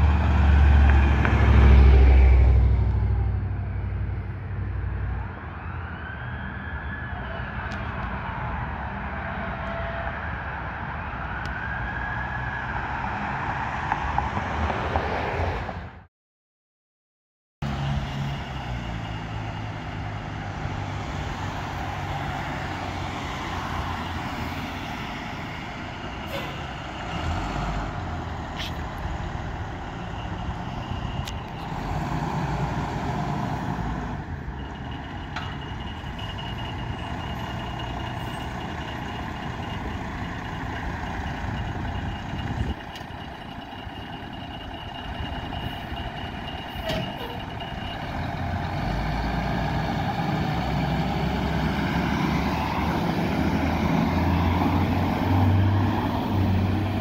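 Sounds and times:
diesel engine running: 17.7 - 57.0
high-pitched warning beeper: 34.5 - 48.2.

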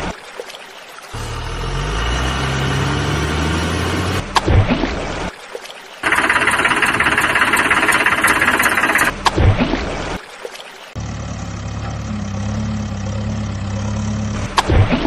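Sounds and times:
loud rattling engine: 6.0 - 9.1, 11.0 - 14.6
low engine idling: 6.0 - 9.1, 11.0 - 14.7.

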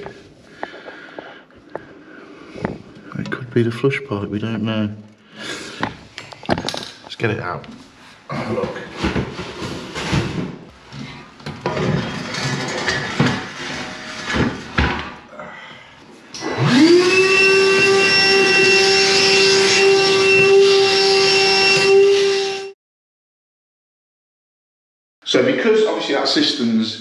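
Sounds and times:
wet vac motor whining: 16.4 - 22.7.

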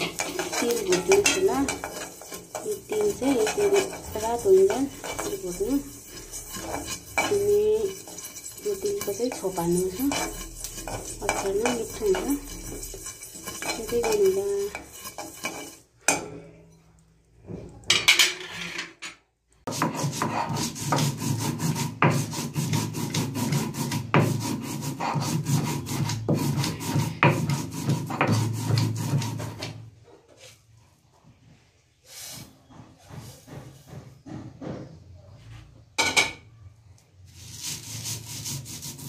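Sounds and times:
stone roller grinding chillies: 0.0 - 15.9, 19.7 - 29.8, 37.3 - 39.0.

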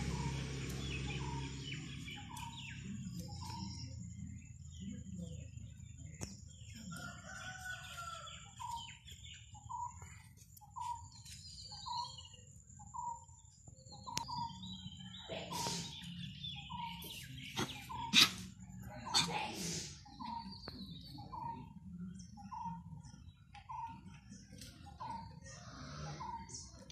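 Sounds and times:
rooster crowing: 7.0 - 8.7.

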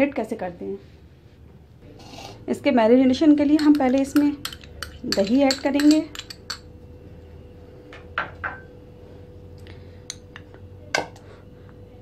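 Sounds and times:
faint steady hum: 0.0 - 12.0
spoon clinking against bowls: 3.3 - 6.7.

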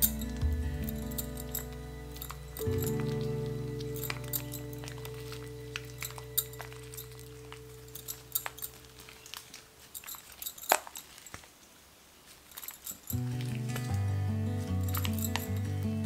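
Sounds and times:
background music: 0.0 - 9.3, 13.2 - 16.0.

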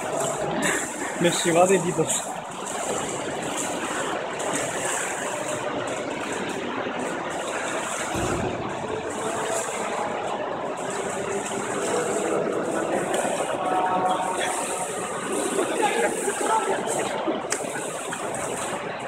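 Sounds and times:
indoor pool hall noise: 0.0 - 19.0
low thump: 8.1 - 9.0.

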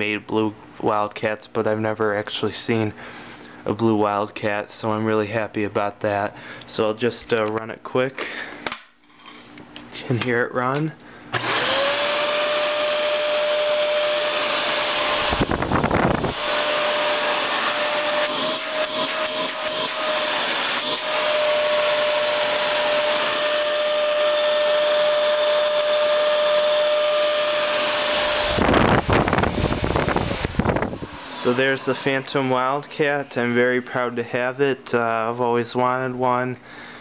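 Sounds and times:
vacuum cleaner motor whine: 11.3 - 33.4.

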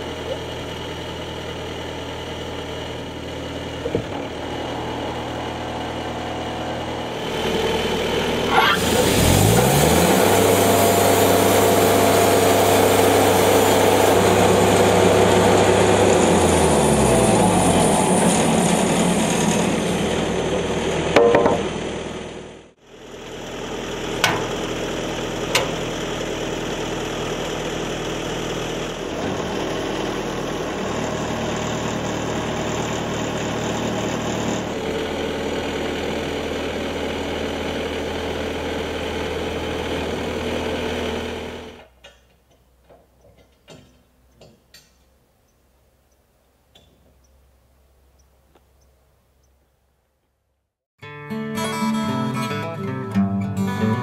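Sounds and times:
sawmill engine running: 0.0 - 43.2
sharp knocks: 21.2 - 21.6.

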